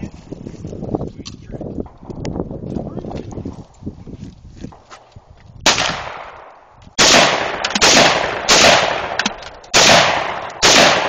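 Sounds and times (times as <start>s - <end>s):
rifle shots: 5.6s - 11.0s.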